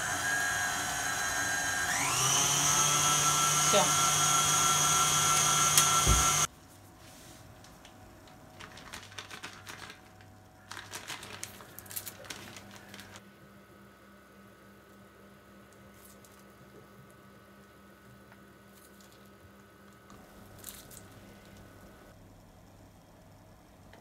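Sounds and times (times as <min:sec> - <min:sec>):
stand mixer motor whining: 0:00.0 - 0:06.5
plastic piping bag crinkling: 0:07.6 - 0:13.2.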